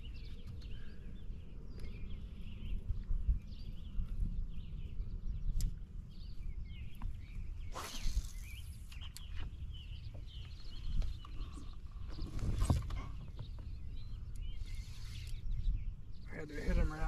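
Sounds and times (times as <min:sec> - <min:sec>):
small birds chirping and singing: 0:00.0 - 0:17.0
wind rumble on microphone: 0:00.0 - 0:17.0
loud swishes: 0:07.7 - 0:08.6.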